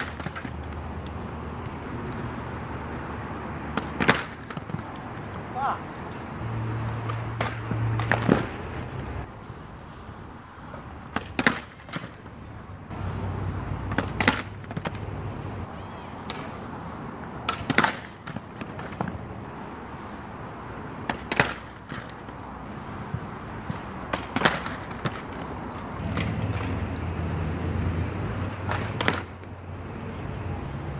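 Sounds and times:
skates clacking on concrete ledge: 0.0 - 2.3, 2.9 - 9.3, 10.6 - 12.5, 13.4 - 19.7, 20.7 - 27.1, 28.4 - 29.6
skates rolling on concrete: 0.0 - 30.9.

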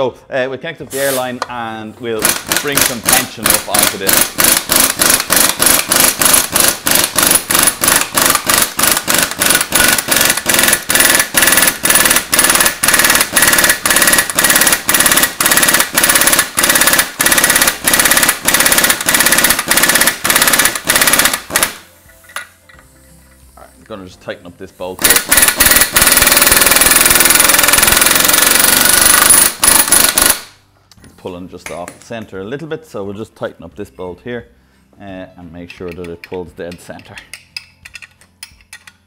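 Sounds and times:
air impact wrench hammering: 2.2 - 23.0, 25.0 - 30.6.

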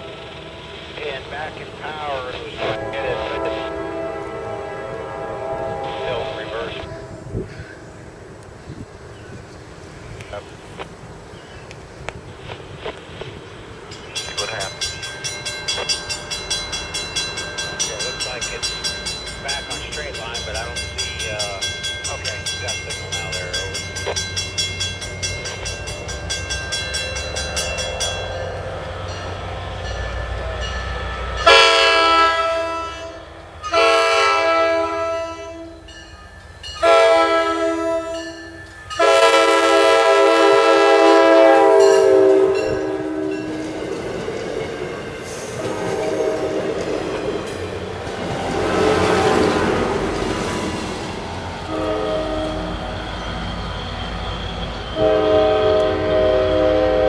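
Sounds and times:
train air horn blasts: 0.0 - 0.8, 2.0 - 7.8, 27.3 - 35.9, 36.8 - 43.7, 45.0 - 46.8, 51.7 - 53.0, 54.8 - 57.0
diesel locomotive rumbling: 0.0 - 57.0.

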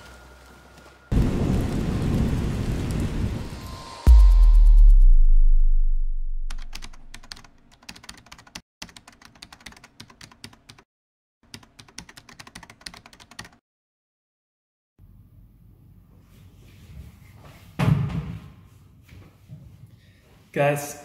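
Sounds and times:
deep rumble: 1.1 - 7.2
computer keyboard typing: 6.5 - 10.8, 11.5 - 13.6.

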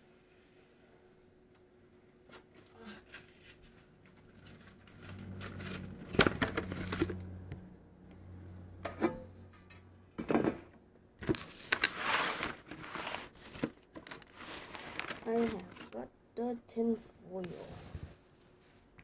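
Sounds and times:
low steady hum: 0.0 - 11.8
knocks and clatters of handling: 2.3 - 7.4, 8.8 - 16.0.

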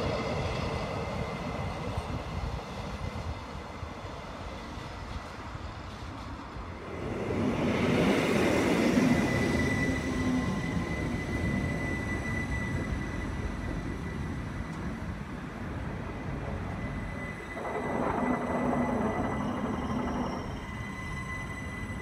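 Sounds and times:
train wheels rumbling on track: 0.0 - 22.0
high-pitched whine: 6.8 - 22.0.

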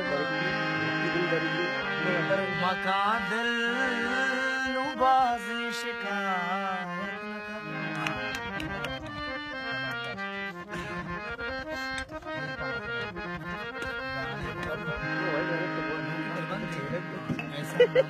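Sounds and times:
harmonium melody over drone: 0.0 - 18.0
person singing: 2.0 - 8.9.

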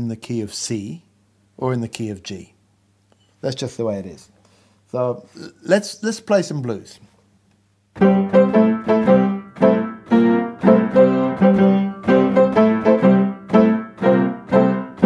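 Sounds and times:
piano blues chords: 8.0 - 15.0.

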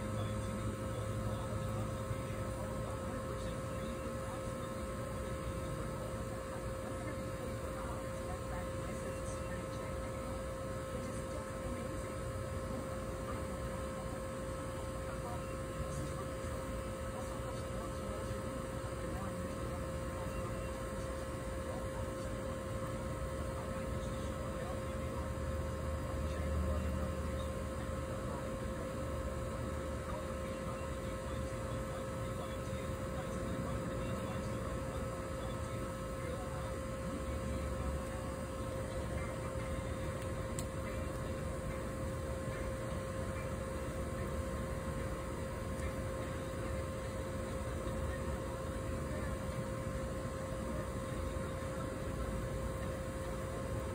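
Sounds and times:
faint constant tone: 0.0 - 53.9
steady tonal hum: 0.0 - 53.9.

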